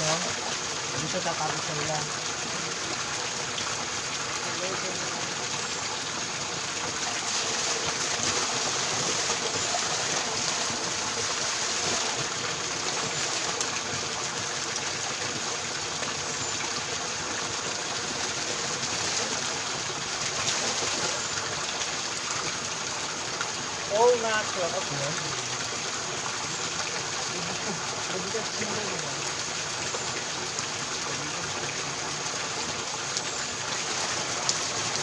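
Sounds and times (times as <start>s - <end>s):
water splashing into pool: 0.0s - 24.2s.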